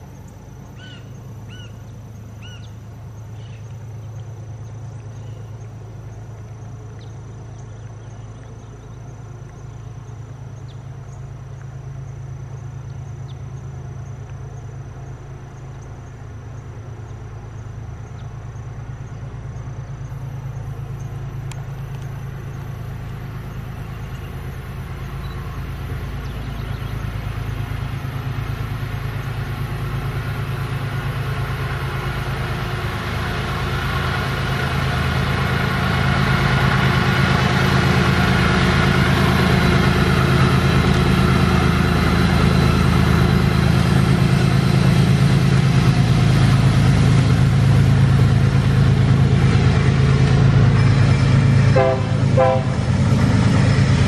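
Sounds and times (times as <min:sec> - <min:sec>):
locomotive engines droning: 0:00.0 - 0:54.0
locomotive horn blasts: 0:50.1 - 0:53.2.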